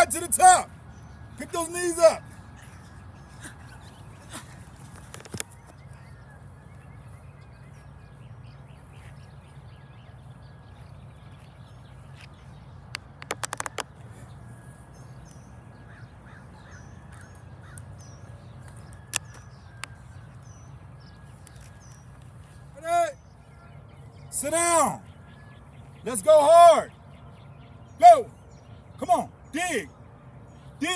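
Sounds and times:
birds calling faintly: 0.0s - 30.9s
sharp clicks: 12.9s - 14.0s.

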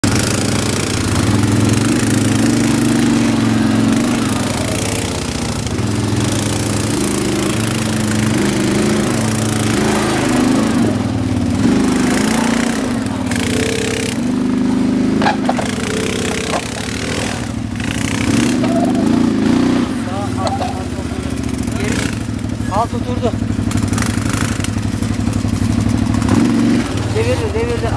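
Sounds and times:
quad bike engine running: 0.0s - 27.9s.

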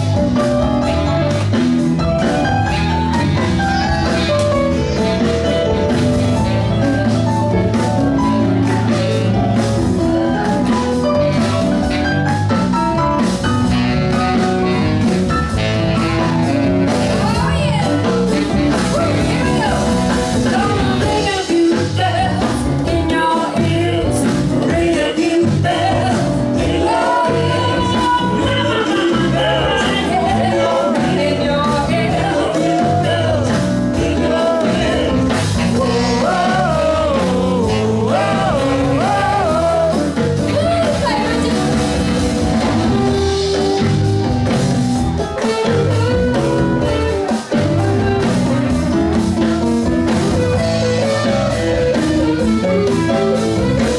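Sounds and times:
bass: 0.0s - 53.9s
drums: 0.0s - 53.9s
electric guitar: 0.0s - 53.9s
keyboard: 0.0s - 53.9s
saxophone: 0.0s - 53.9s
women singing: 20.4s - 42.0s.

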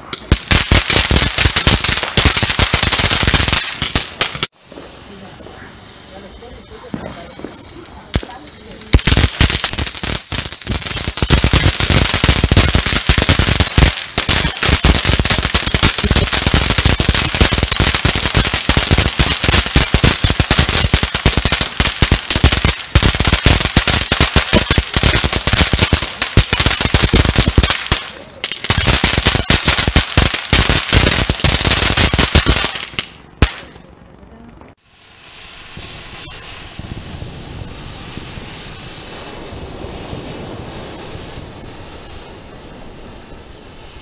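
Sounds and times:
firework crackling pops: 0.0s - 44.0s
falling whistle: 9.6s - 11.3s.

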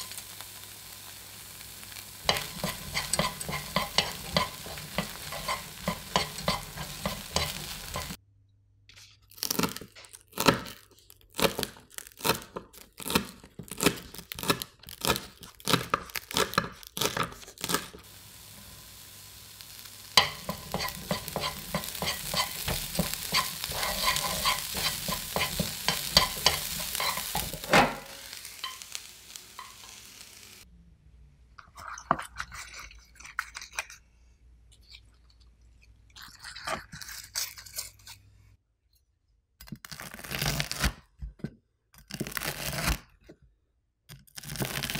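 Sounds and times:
corn sizzling in a pan: 0.0s - 8.2s, 11.4s - 30.7s, 44.4s - 44.9s
wooden spatula stirring: 2.2s - 8.2s, 20.2s - 28.8s.

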